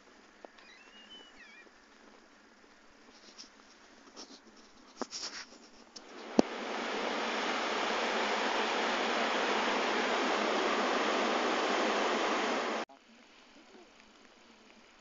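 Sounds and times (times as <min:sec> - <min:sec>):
waterfall rushing: 0:06.0 - 0:12.8.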